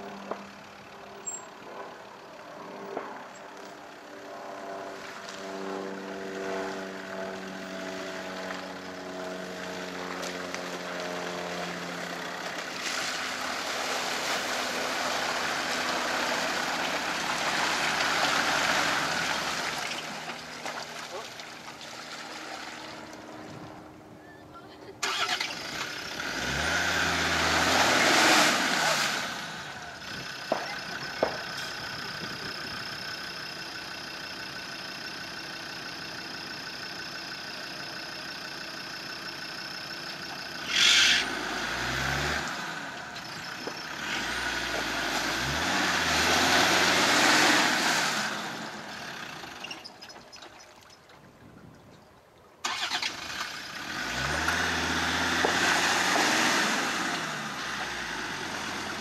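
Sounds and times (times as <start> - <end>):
engine revving: 4.1 - 20.4, 25.0 - 33.3, 40.0 - 49.8, 52.6 - 59.0.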